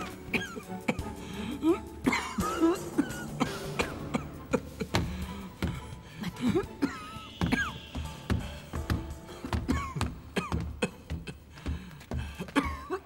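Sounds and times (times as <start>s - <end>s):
soft background music: 0.0s - 13.0s
old man coughing: 0.1s - 1.0s, 1.7s - 5.1s, 6.3s - 8.0s, 9.6s - 11.4s, 12.4s - 13.0s.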